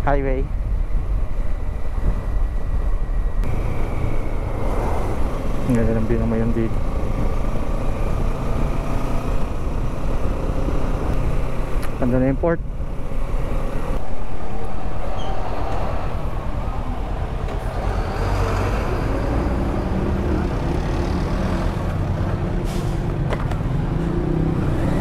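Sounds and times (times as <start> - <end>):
road and wind noise: 0.0 - 25.0.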